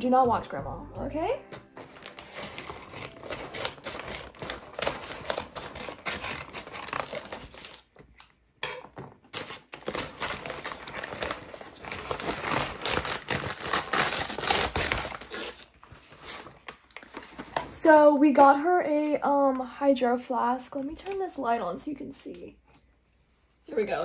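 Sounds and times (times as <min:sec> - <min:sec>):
paper mailer crinkling: 0:01.5 - 0:08.0
scissors cutting paper: 0:01.8 - 0:08.3, 0:09.4 - 0:15.7.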